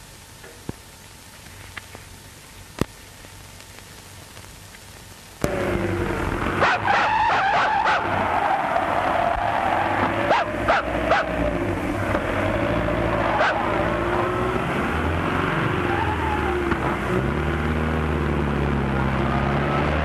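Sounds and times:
car engine running: 5.4s - 19.9s
dog barking: 10.3s - 11.3s, 13.4s - 13.6s.

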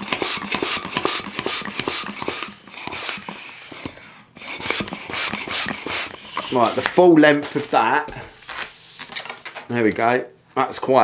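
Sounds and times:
hand pump air strokes: 0.0s - 7.0s.

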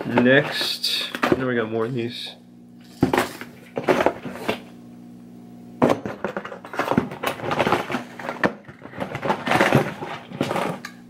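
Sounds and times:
low electrical hum: 0.0s - 11.0s
plastic packages clattering: 6.2s - 10.9s.

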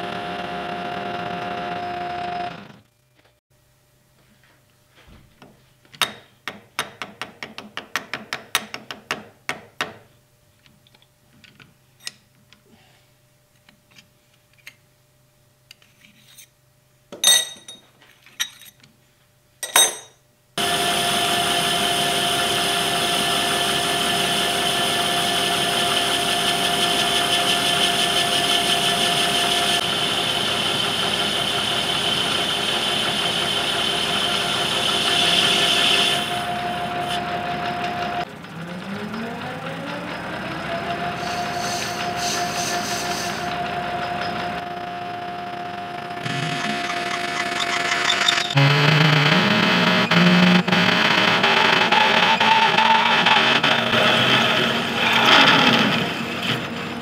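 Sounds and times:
lathe running with whine: 0.0s - 2.8s, 20.6s - 57.0s.

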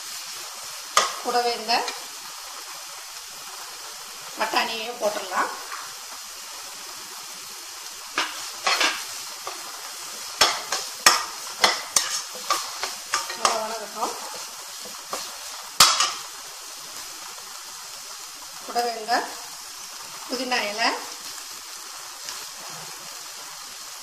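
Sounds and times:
frying sizzle: 0.0s - 24.0s
spoon knocking and scraping pan: 0.9s - 2.1s, 8.1s - 16.3s.

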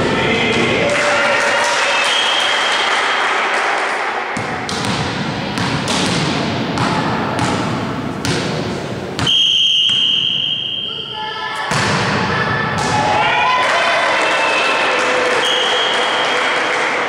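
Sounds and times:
volleyball being hit: 4.4s - 10.4s, 11.7s - 13.2s
referee's whistle blast: 9.2s - 11.4s.

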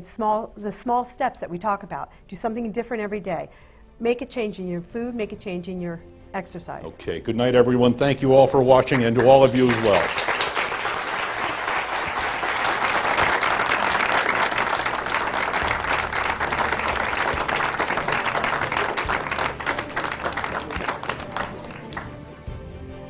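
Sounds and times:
audience applauding: 8.6s - 22.4s.

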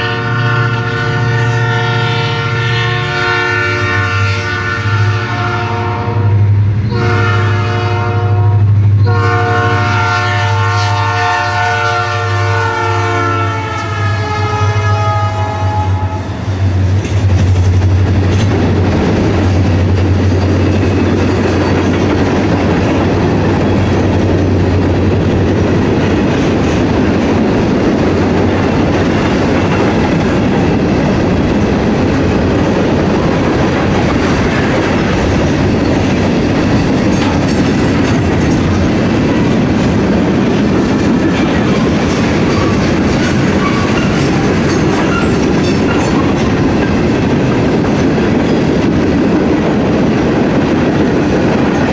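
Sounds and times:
train wheels rumbling on rail: 0.0s - 51.9s
wheels clicking over rail joints: 16.8s - 48.1s.

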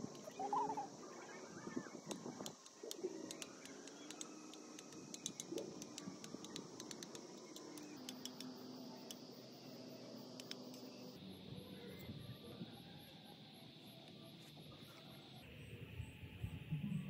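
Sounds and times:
light clicks and ticks: 2.1s - 9.2s.

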